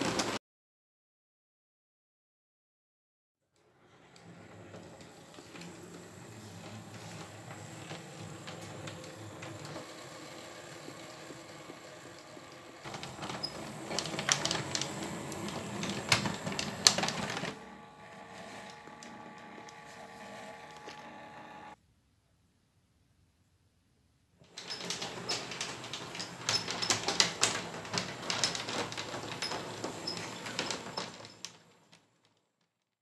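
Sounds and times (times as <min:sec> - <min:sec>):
toy tram motor running: 0:04.2 - 0:21.8, 0:24.5 - 0:31.8
wheels clicking over track points: 0:04.2 - 0:21.8, 0:24.5 - 0:31.8.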